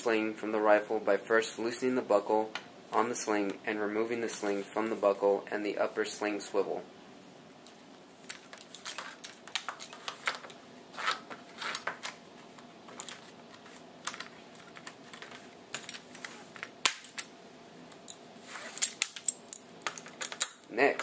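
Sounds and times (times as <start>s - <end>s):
metal buckle clicking and clinking: 12.9s - 16.3s, 16.9s - 17.3s, 18.8s - 20.7s.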